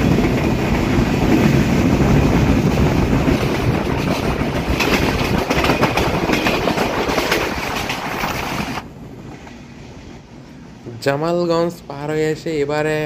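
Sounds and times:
train wheels clattering: 0.0 - 10.2
rushing air: 0.0 - 10.8
steady train rumble: 0.0 - 13.0.

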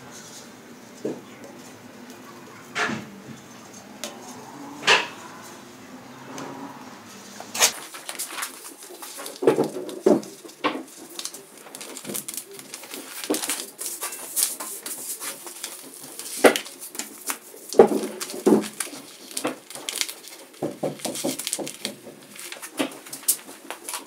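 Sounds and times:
paper crackling and rustling: 7.2 - 24.0
paper snaps: 7.6 - 24.0.

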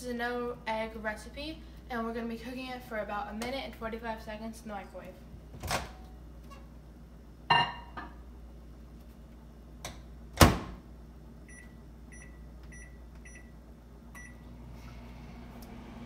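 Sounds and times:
microwave keypad beeps: 11.5 - 13.5, 14.2 - 14.4.

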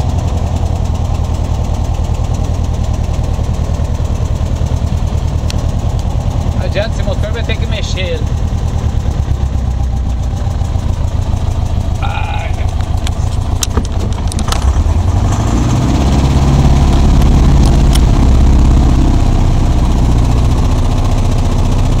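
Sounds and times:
light aircraft piston engine: 0.0 - 22.0
sharp clicks: 12.7 - 14.8.

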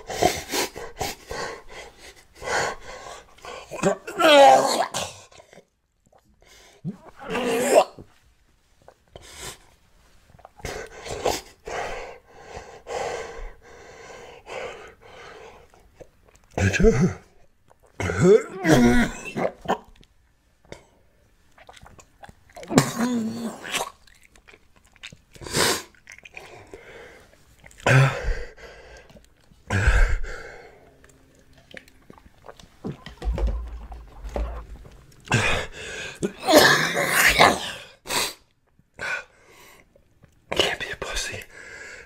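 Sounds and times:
man chewing: 15.5 - 16.6, 20.7 - 22.8, 23.6 - 27.9, 28.6 - 36.4
man coughing and clearing throat: 16.6 - 17.3
man gagging: 18.2 - 19.6.

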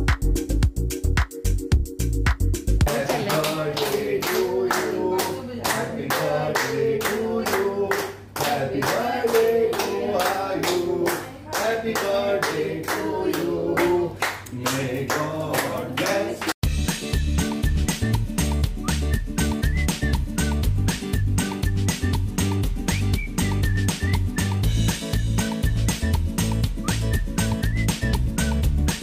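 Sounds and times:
people clapping in rhythm: 2.3 - 16.7
group singing: 2.9 - 16.6.

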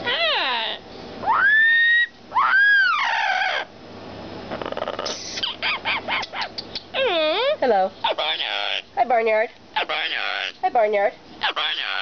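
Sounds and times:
parrot chattering notes: 0.0 - 0.8, 4.5 - 9.0, 9.8 - 10.6, 11.4 - 12.0
parrot whistled calls: 0.0 - 3.7, 5.0 - 8.9.

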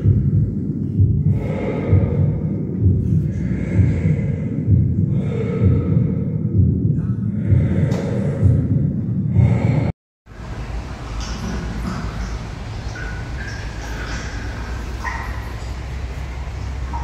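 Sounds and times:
low thumps: 0.0 - 9.9
airy breathing sounds: 0.0 - 17.0
steady low rumble: 0.0 - 17.0.

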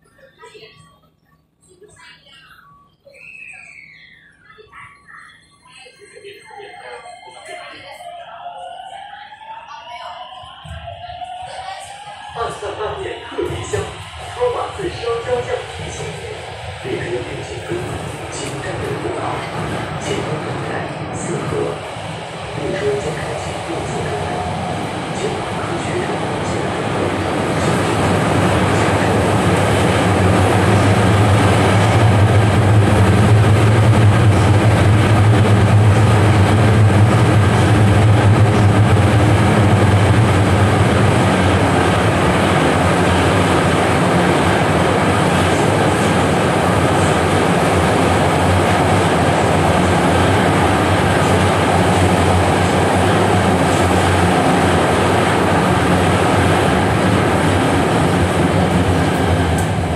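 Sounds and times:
wheels rumbling on rail: 11.6 - 59.9.

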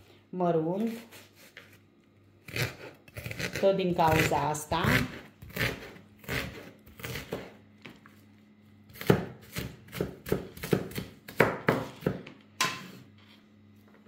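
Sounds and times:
knife chopping on wooden board: 2.5 - 7.6, 8.9 - 13.0.

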